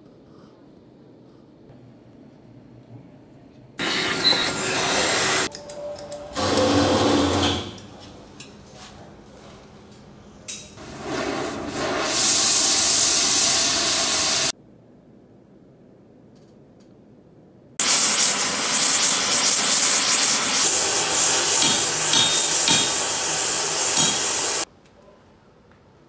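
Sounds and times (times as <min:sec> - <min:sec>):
torch flame hissing: 0:03.8 - 0:05.5, 0:10.8 - 0:14.6, 0:17.8 - 0:24.7.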